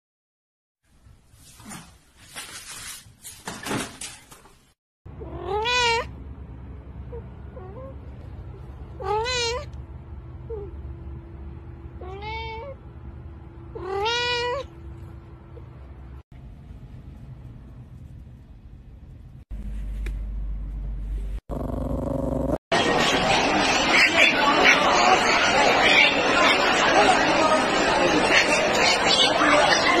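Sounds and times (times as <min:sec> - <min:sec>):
cat meowing: 0:05.2 - 0:06.1, 0:09.0 - 0:09.8, 0:12.0 - 0:12.8, 0:13.7 - 0:14.8
steady low hum: 0:14.7 - 0:22.6.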